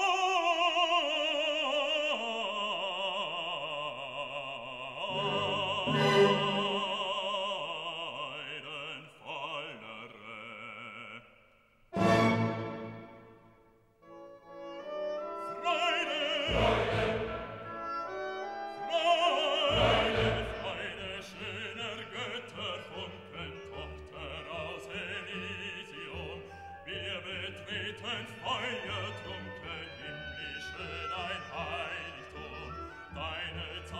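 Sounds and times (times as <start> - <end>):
operatic voice singing: 0.0 - 11.4, 15.3 - 33.9
orchestral music: 5.0 - 7.5, 12.0 - 33.9.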